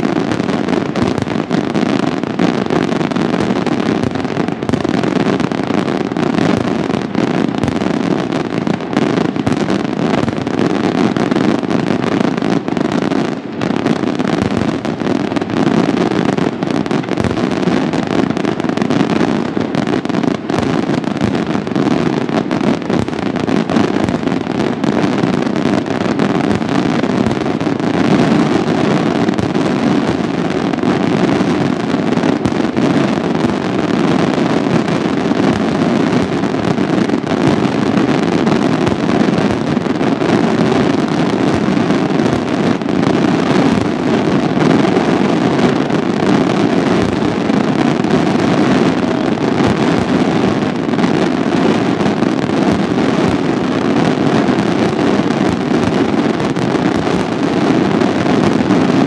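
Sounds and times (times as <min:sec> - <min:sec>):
fireworks bangs and crackling: 0:00.0 - 0:59.0.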